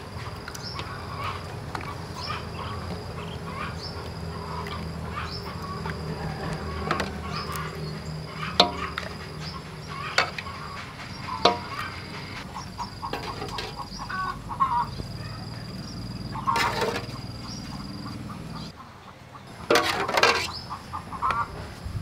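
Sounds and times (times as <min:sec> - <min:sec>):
birds calling: 0:00.0 - 0:22.0
metal ladle knocking on containers: 0:06.8 - 0:07.2, 0:08.5 - 0:10.6, 0:11.2 - 0:11.8, 0:13.0 - 0:13.9.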